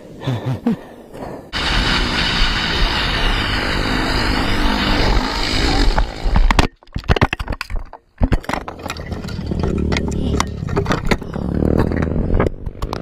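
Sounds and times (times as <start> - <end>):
quad engine running: 1.6 - 6.6, 9.2 - 13.0
sharp knocks and clatter: 5.8 - 13.0.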